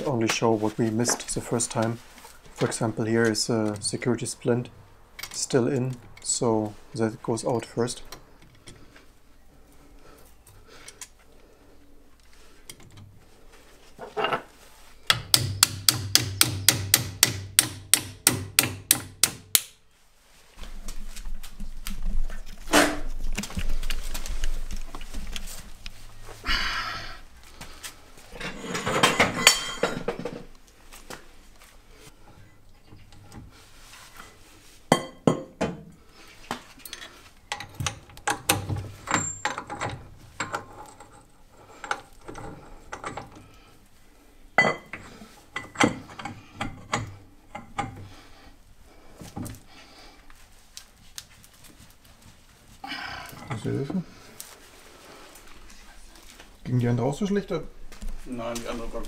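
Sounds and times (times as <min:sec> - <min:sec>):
sharp knocks: 0:15.1 - 0:19.5
metal tools clinking: 0:28.4 - 0:30.2, 0:36.8 - 0:43.4.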